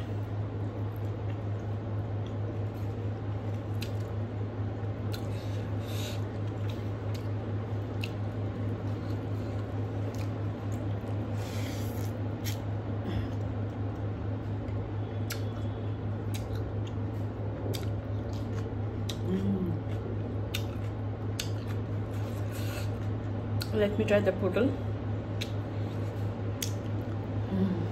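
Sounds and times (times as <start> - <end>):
steady low hum: 0.0 - 27.9
chewing and mouth clicks: 3.5 - 4.2, 5.0 - 5.3, 6.4 - 11.2, 14.6 - 23.8, 25.4 - 25.6, 26.5 - 27.2.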